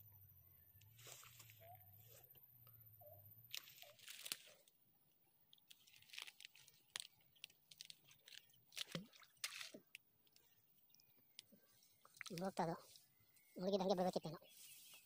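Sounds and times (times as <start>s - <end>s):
rustling and crunching in grass: 0.9s - 2.3s, 3.5s - 4.7s, 5.6s - 10.5s, 11.6s - 15.0s.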